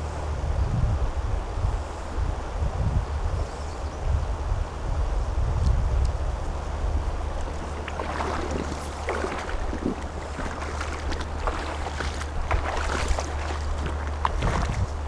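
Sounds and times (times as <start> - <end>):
wind rumble on microphone: 0.0 - 15.0
water splashing against boat: 6.8 - 15.0.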